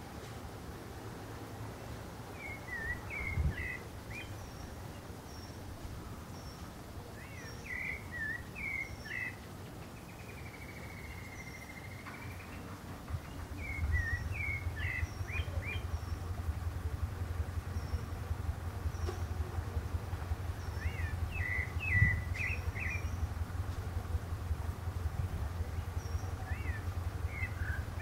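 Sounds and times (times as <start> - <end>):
thrush singing whistled notes: 2.3 - 5.6, 7.2 - 9.4, 13.2 - 19.4, 20.3 - 23.6, 25.6 - 28.0
low rumble: 12.6 - 28.0
faint high chirp: 20.5 - 23.3.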